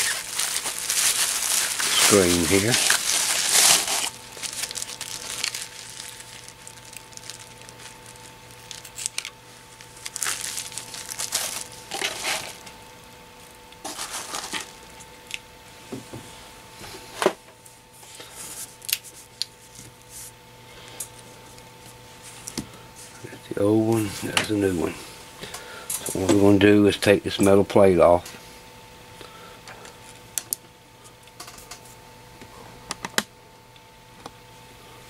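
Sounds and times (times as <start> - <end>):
bubble wrap crinkling: 0.0 - 15.4, 18.3 - 20.3
faint steady hum: 0.0 - 35.0.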